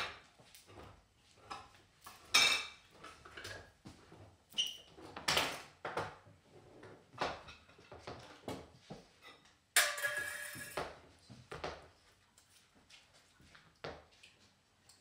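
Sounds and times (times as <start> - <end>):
utensils clinking against dishes: 9.2 - 10.9.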